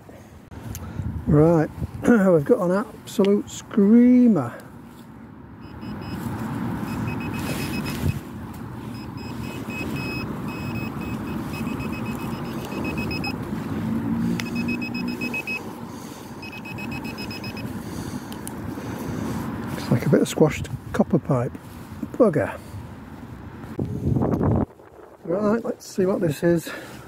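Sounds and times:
pinpointer rapid short beeps: 5.6 - 6.2, 6.8 - 8.2, 8.9 - 13.4, 14.4 - 15.6, 16.4 - 17.7.

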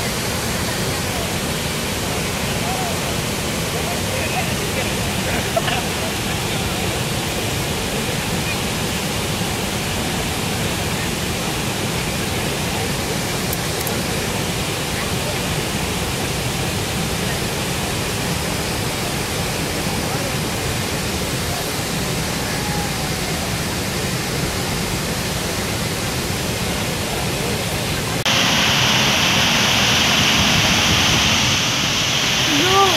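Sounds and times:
water and spray wash: 0.0 - 32.9
waterfall rushing: 0.0 - 32.9.

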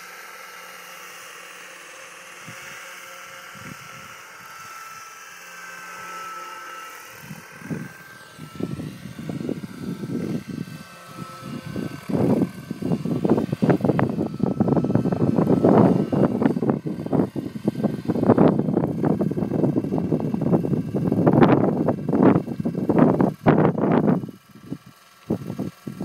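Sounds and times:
model helicopter high whine: 0.0 - 26.0
wind buffeting microphone: 3.4 - 4.9, 7.1 - 26.0.

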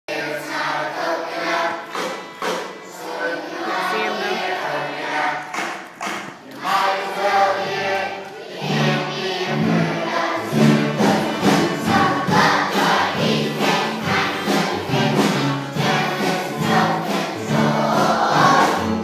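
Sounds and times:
children's choir singing: 0.1 - 19.0
short thumps or claps: 5.5 - 6.7.

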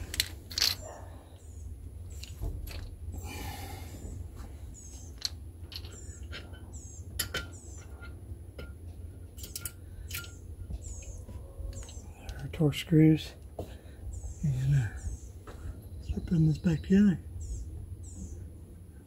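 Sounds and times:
low steady hum: 0.0 - 19.0
small bird chirping: 4.7 - 5.2, 5.8 - 8.0, 9.4 - 12.5, 14.0 - 18.5.

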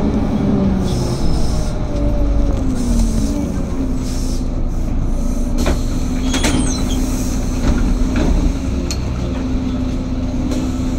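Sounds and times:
bus engine drone: 0.0 - 10.9
road rumble: 0.0 - 10.9
short falling squeak: 6.2 - 7.2.

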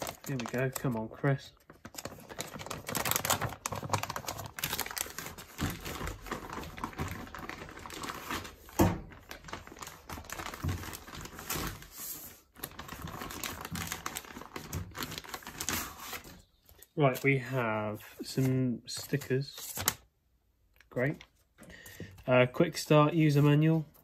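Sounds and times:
plastic wallet and paper crinkling: 0.0 - 17.5.

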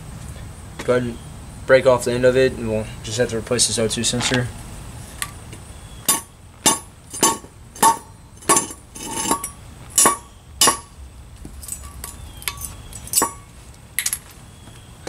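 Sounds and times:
hammer striking metal: 6.0 - 11.0, 11.8 - 13.5.

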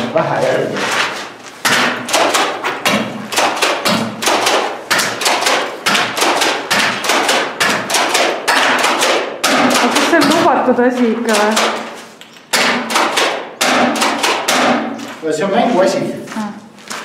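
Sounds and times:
airsoft gun firing sharp cracks: 1.7 - 10.6, 11.3 - 15.0.

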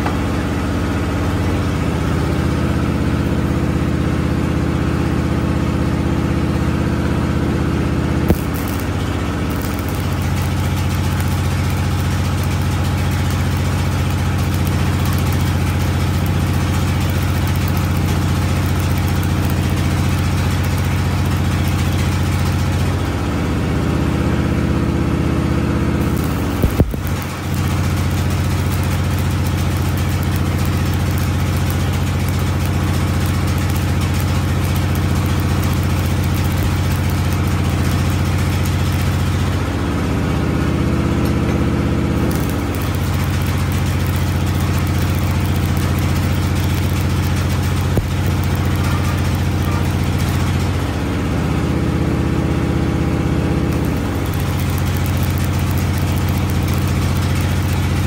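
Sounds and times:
welding arc crackling and hissing: 8.2 - 23.3, 25.9 - 40.3, 42.0 - 51.6, 53.4 - 58.0
low machine hum: 8.2 - 23.9, 25.8 - 52.4
sharp click: 8.3 - 10.5, 26.1 - 27.3.

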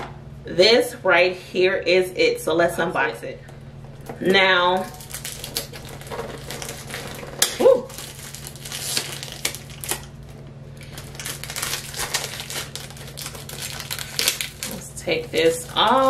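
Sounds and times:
cardboard box packaging crinkling: 4.8 - 16.0.

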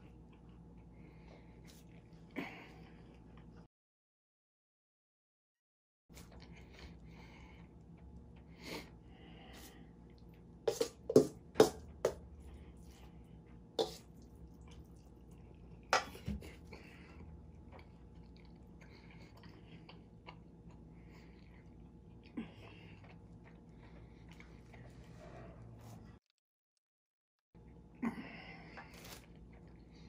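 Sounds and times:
quiet chewing: 0.0 - 3.7, 12.2 - 26.1.

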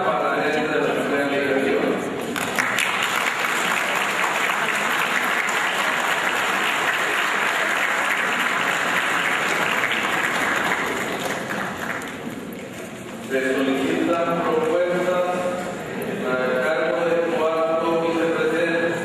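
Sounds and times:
crowd applauding: 2.3 - 12.5.

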